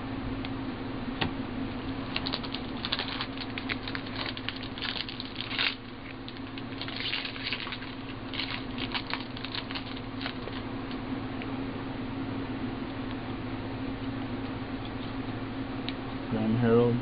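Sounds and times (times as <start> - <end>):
steady low hum: 0.0 - 17.0
foil wrappers crinkling: 2.0 - 11.0.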